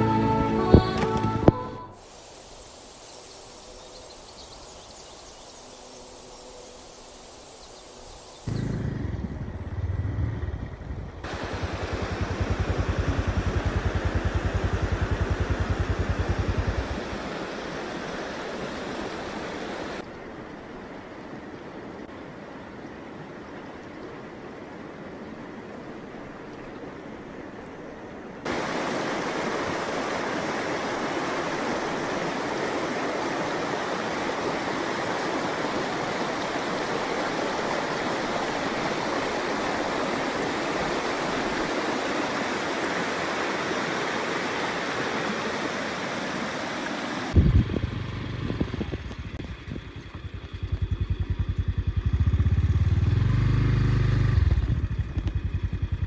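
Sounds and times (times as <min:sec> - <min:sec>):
vehicle engine running: 0:08.5 - 0:17.3, 0:47.4 - 0:56.0
rumble of moving vehicle: 0:08.5 - 0:18.4, 0:47.3 - 0:56.0
fast river rushing: 0:11.2 - 0:48.3.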